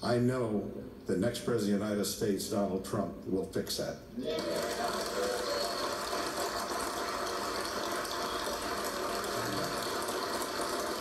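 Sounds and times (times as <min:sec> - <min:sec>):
crowd applauding: 0:04.2 - 0:11.0.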